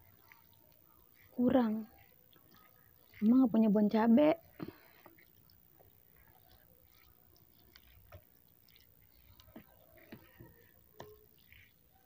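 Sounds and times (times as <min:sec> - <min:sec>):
wet squishes of noodles: 0:00.0 - 0:12.0.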